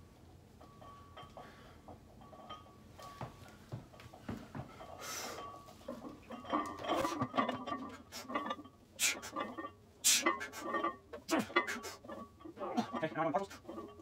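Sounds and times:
weight plates clinking and rattling: 0.5s - 14.0s
person breathing hard: 5.0s - 5.5s
sharp exhalations: 9.0s - 9.4s, 10.0s - 10.7s, 11.3s - 12.1s.

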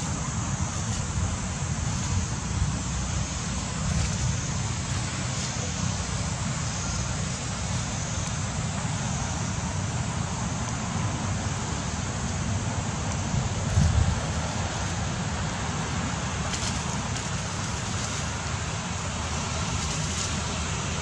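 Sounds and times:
wind buffeting microphone: 12.4s - 18.5s.

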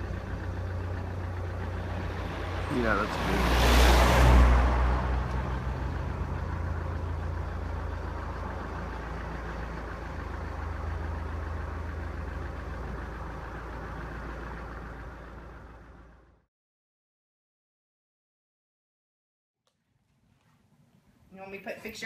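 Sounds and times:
vehicle engine idling: 0.0s - 16.5s.

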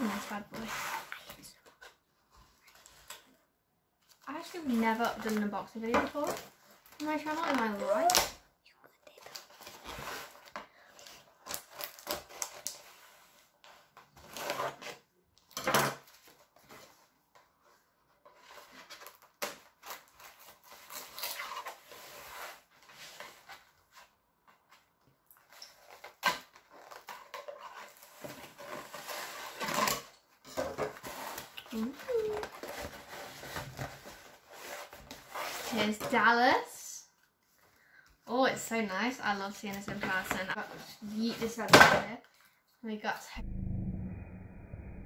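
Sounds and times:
cardboard ripping: 11.4s - 13.0s, 14.2s - 15.0s, 18.4s - 23.5s
cardboard flaps scraping and rustling: 25.5s - 36.1s.

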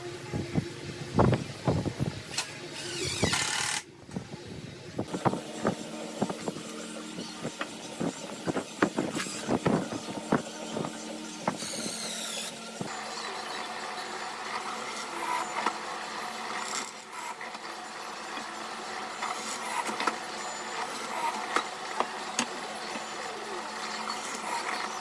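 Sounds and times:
cordless drill driving screw: 2.3s - 3.9s, 11.5s - 13.0s
drill press boring wood: 2.3s - 3.9s, 5.1s - 25.0s.

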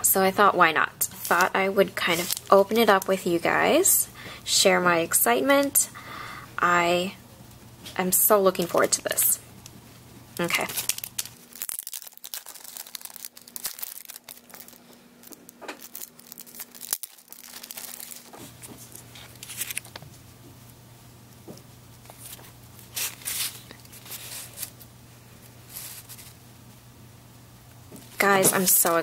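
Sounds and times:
plastic wrapping crinkling and tearing: 1.1s - 3.1s, 10.4s - 20.2s, 22.1s - 24.9s, 25.6s - 26.4s.

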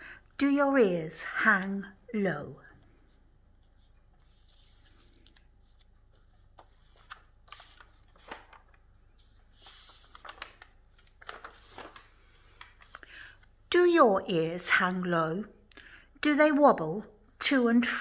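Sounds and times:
book pages turning: 2.8s - 13.5s.

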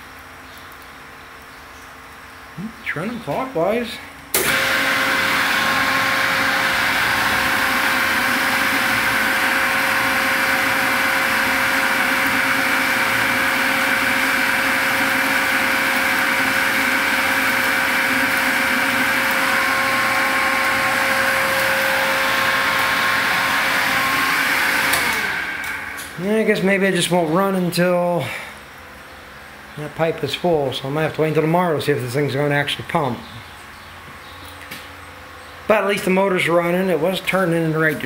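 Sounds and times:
electric motor humming: 4.4s - 26.6s.

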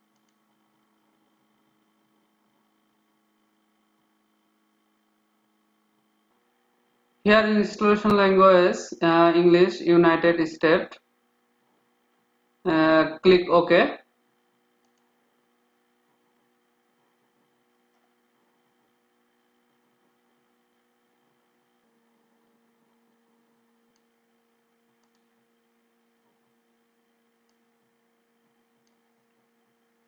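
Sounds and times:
faint electrical hum: 0.0s - 30.0s
faint clicks: 14.8s - 15.2s, 25.0s - 25.3s.

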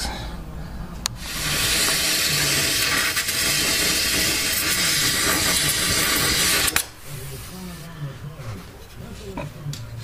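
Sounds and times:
gas torch hissing: 1.2s - 6.9s.

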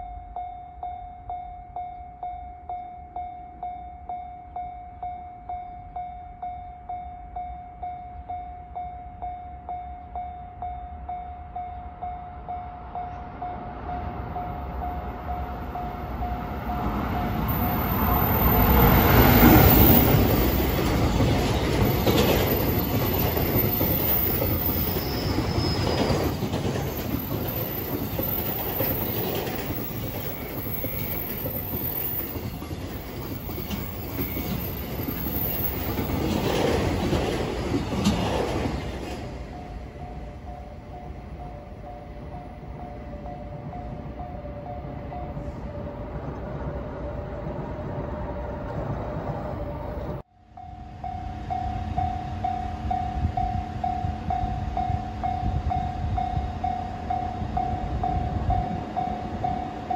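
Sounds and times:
level crossing warning bell: 0.0s - 47.7s, 49.7s - 59.9s
freight train passing: 0.0s - 59.9s
high wheel squeal: 14.4s - 36.4s
wheels clattering over rail joints: 14.6s - 39.6s.

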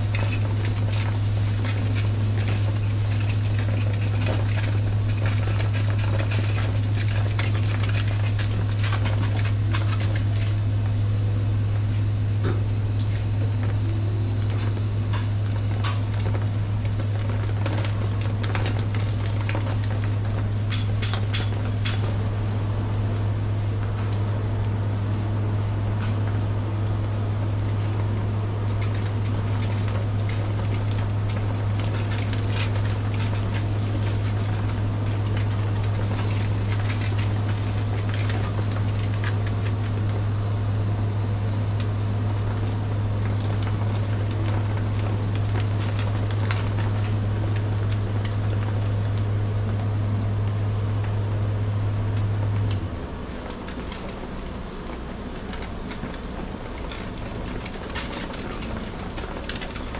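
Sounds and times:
fish sizzling on skewers: 0.0s - 22.7s, 27.4s - 40.7s
grill machine hum: 0.0s - 59.9s.

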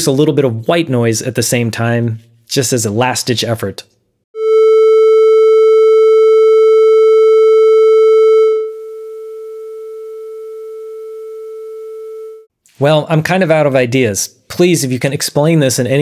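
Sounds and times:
synthesized test tone: 4.4s - 12.5s.

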